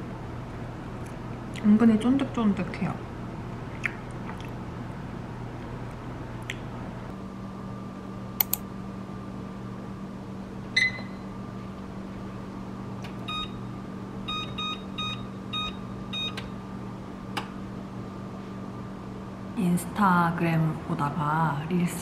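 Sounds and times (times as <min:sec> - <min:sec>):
microwave oven humming: 0:00.0 - 0:22.0
sharp clicks: 0:08.4 - 0:08.6
microwave beeps: 0:10.7 - 0:11.4, 0:13.2 - 0:16.6.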